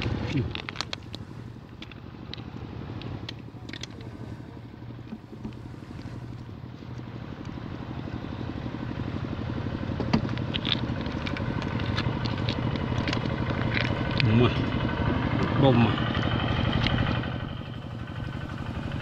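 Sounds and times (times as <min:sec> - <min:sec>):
small engine running: 0:00.0 - 0:19.0.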